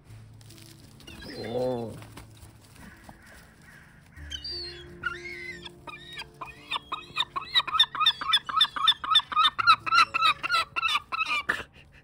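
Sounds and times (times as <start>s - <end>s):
gull calling: 2.8s - 11.4s.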